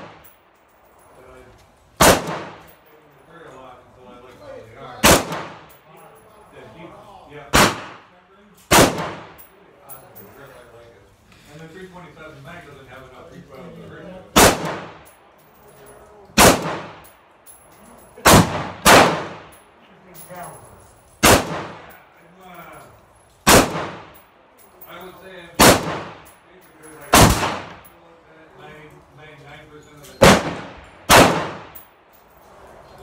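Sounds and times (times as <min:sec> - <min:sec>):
rifle shots echoing: 0:02.0 - 0:02.8, 0:05.0 - 0:05.8, 0:07.5 - 0:08.1, 0:08.7 - 0:09.4, 0:14.4 - 0:15.2, 0:16.4 - 0:17.2, 0:18.2 - 0:19.6, 0:21.2 - 0:22.0, 0:23.4 - 0:24.2, 0:25.6 - 0:26.3, 0:27.1 - 0:27.9, 0:30.2 - 0:31.9.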